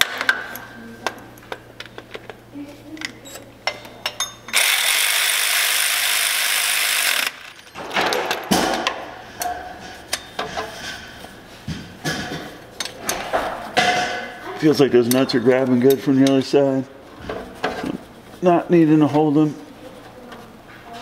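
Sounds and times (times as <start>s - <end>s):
ratchet clicks: 4.5s - 7.7s.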